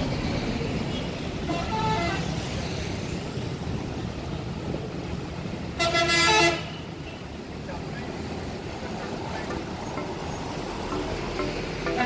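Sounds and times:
road traffic passing: 0:00.0 - 0:12.0
loud vehicle horn blast: 0:05.8 - 0:06.8.

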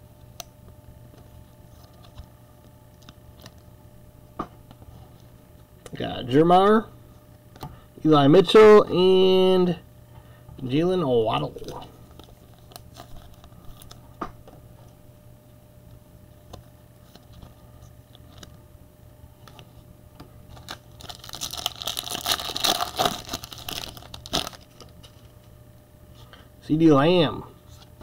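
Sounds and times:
foil wrapper tearing: 0:20.5 - 0:25.3.

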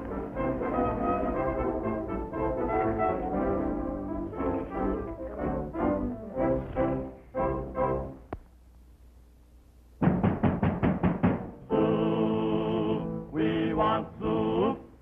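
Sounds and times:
percussive hits: 0:10.0 - 0:11.6
male chorus singing chords: 0:11.6 - 0:15.0.

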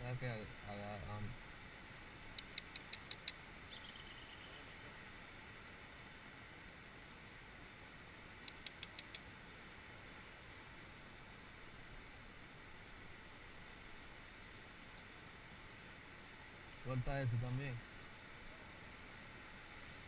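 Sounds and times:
faint steady hiss: 0:00.0 - 0:20.0
rapid sharp ticks: 0:02.4 - 0:03.4, 0:08.5 - 0:09.2.

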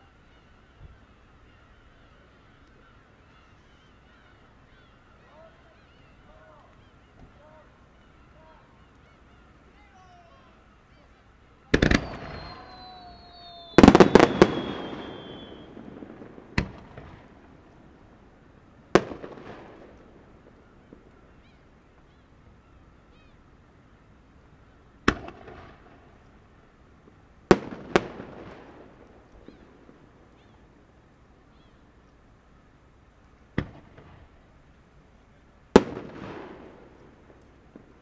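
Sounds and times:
firework shells bursting: 0:11.7 - 0:21.3, 0:35.7 - 0:38.0.

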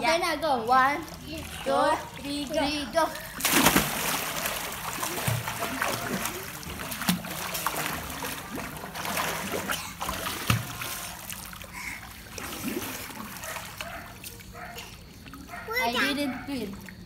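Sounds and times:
pool water splashing: 0:00.0 - 0:17.0.

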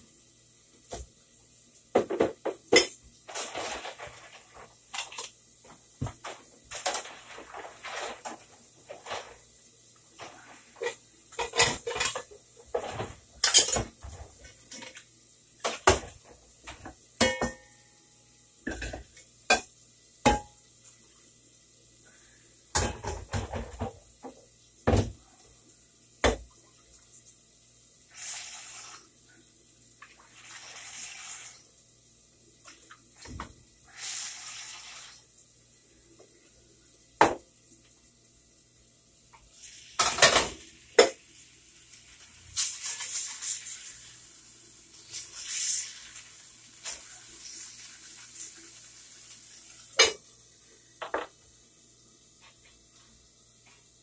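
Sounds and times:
pots and pans clanking: 0:01.9 - 0:05.3, 0:06.0 - 0:09.4, 0:10.2 - 0:15.0, 0:15.6 - 0:17.8, 0:18.7 - 0:19.7, 0:22.8 - 0:25.1, 0:40.0 - 0:41.2, 0:50.0 - 0:50.2.

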